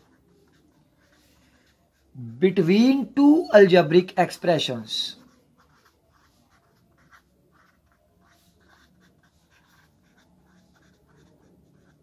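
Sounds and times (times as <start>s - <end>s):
pen scratching on paper: 0.0s - 2.2s, 4.4s - 12.0s.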